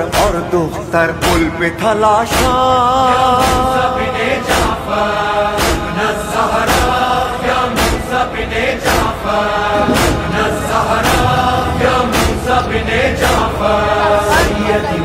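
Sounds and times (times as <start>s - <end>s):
group of voices holding long notes: 0.0s - 15.0s
steady percussive beat: 9.7s - 12.7s.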